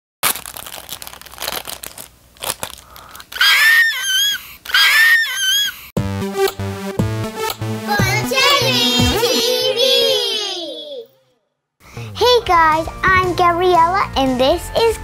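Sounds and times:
plastic wrapper crinkling: 0.2s - 3.5s
girl squealing excitedly: 3.4s - 5.9s.

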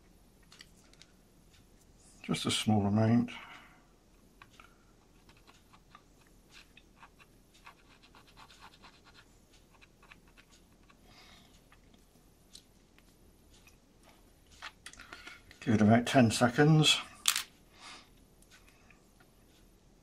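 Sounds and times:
faint ticks and light scratching: 3.4s - 15.8s.

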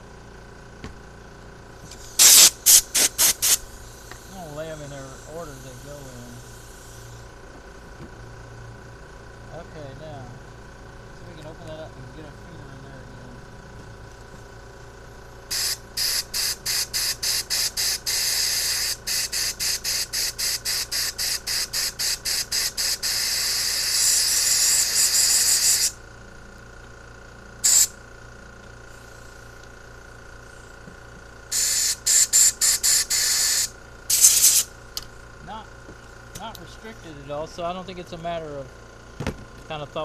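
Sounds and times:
compressed air blow gun hissing: 1.8s - 7.3s, 15.5s - 26.0s, 27.6s - 27.9s, 31.5s - 34.7s.

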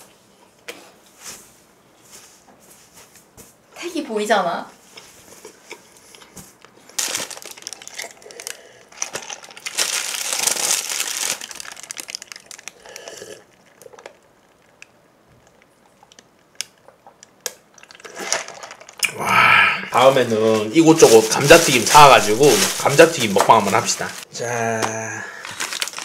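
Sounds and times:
plastic bag crinkling: 6.5s - 19.0s, 20.0s - 24.3s, 25.3s - 26.0s.

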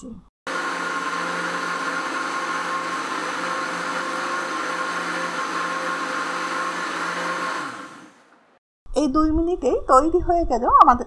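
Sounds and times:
blender running: 0.5s - 8.4s.

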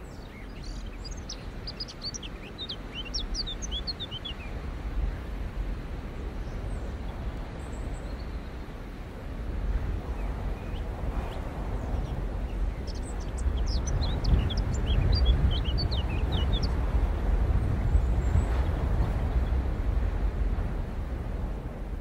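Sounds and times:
small bird chirping: 0.0s - 4.6s, 10.5s - 16.9s
steady low rumble: 0.0s - 22.0s.

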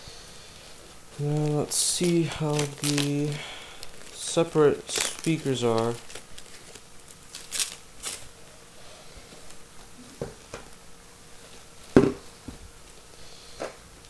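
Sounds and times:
plastic and foam wrap crinkling: 0.6s - 8.6s.

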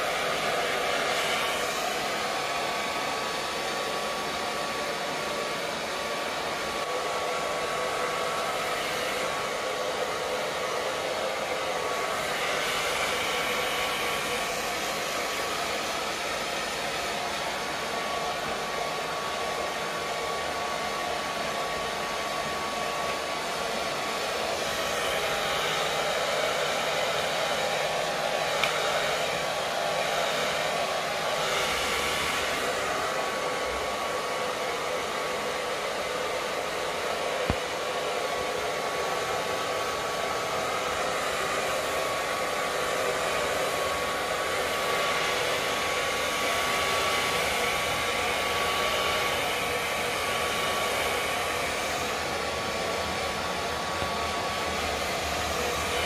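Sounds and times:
hair dryer running: 0.0s - 56.0s.

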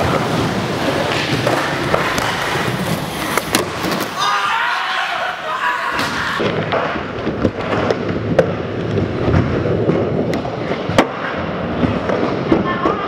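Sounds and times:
skateboard wheels rolling on concrete: 0.0s - 13.0s
sharp skateboard clacks: 0.8s - 4.1s.

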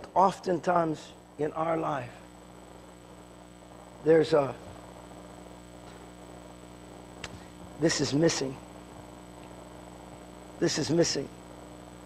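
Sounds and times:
electrical mains hum: 0.0s - 12.0s
man speaking: 0.1s - 2.2s, 4.0s - 4.7s, 7.8s - 8.6s, 10.6s - 11.3s
faint click: 7.2s - 7.4s.

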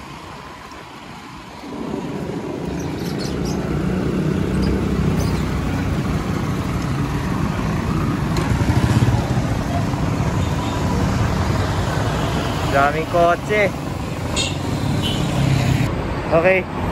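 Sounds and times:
bicycle rumble: 0.0s - 15.9s
motor traffic: 0.0s - 16.9s
wind buffeting microphone: 0.8s - 11.9s.

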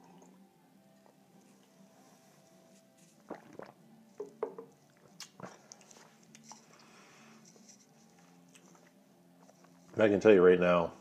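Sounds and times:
person sipping and swallowing: 3.0s - 7.0s
glass set down on table: 4.2s - 4.7s.

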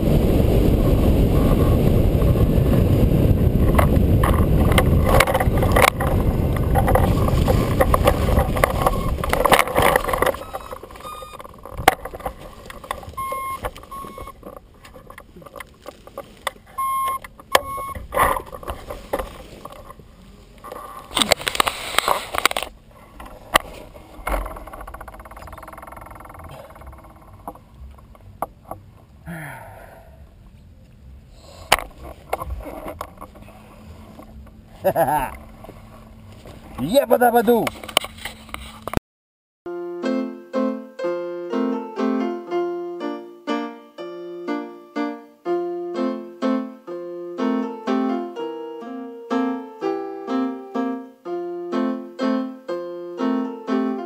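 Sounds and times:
rushing airflow: 0.0s - 10.3s
brief rustling: 4.2s - 28.1s
short electronic beeps: 8.9s - 9.2s, 10.3s - 11.4s, 13.2s - 14.4s, 16.8s - 18.0s.

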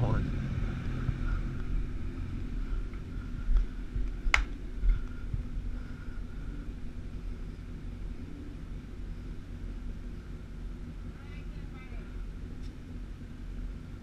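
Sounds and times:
low rumble: 0.0s - 14.0s.

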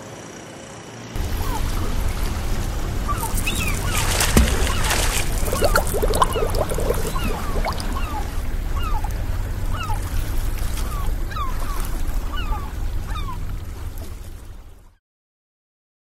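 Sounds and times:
short falling bird calls: 1.2s - 9.1s
waves washing: 1.2s - 14.9s.

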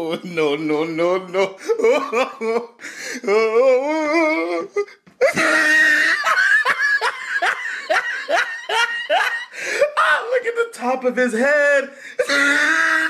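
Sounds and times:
people laughing hard: 5.2s - 10.1s.

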